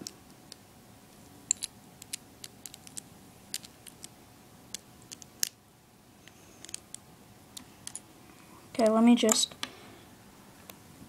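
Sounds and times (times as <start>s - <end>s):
plastic pieces clicking: 1.5s - 4.1s, 4.7s - 5.6s.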